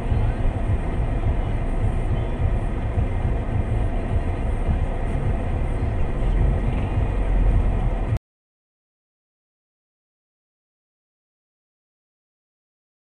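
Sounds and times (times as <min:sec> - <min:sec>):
vehicle rumble: 0:00.0 - 0:08.2.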